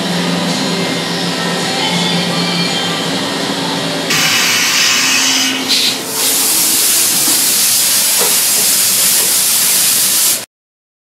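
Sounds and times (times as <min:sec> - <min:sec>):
milling machine cutting steel: 0:04.1 - 0:09.7.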